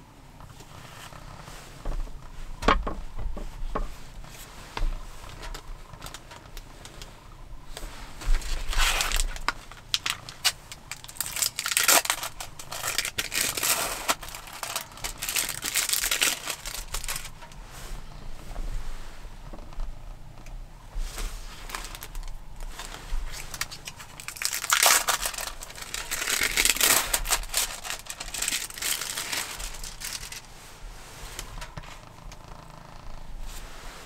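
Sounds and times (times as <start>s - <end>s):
plastic packaging crinkling: 8.2s - 17.6s, 21.6s - 30.5s.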